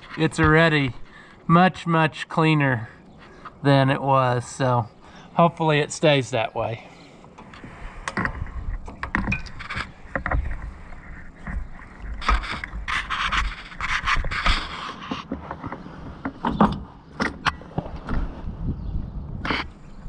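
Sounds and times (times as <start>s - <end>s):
rubber hose rubbing and scraping: 0.0s - 1.2s, 7.2s - 16.8s, 19.5s - 19.9s
jacket sleeve brushing microphone: 9.5s - 15.3s.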